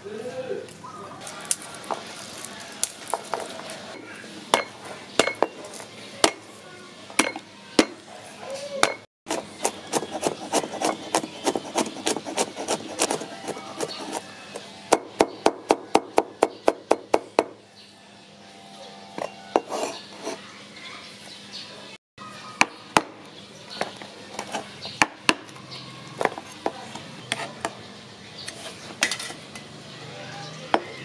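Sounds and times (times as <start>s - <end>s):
cleaver chopping on wooden board: 8.8s - 14.2s, 14.9s - 17.6s.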